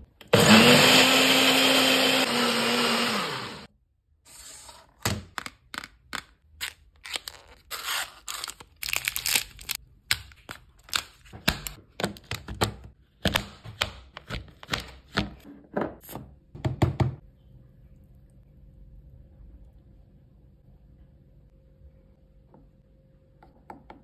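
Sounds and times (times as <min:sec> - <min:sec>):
foil wrapper crinkling and tearing: 0:06.6 - 0:09.8.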